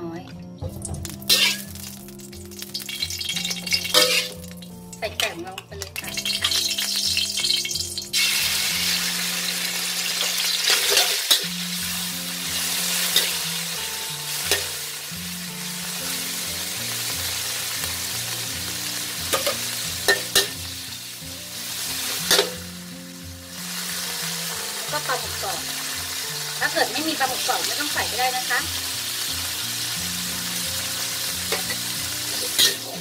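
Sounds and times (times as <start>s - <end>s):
chicken sizzling in hot oil: 0.8s - 33.0s
metal spatula scraping wok: 1.2s - 2.0s, 2.8s - 4.6s, 10.1s - 13.4s, 22.0s - 22.6s, 31.5s - 33.0s.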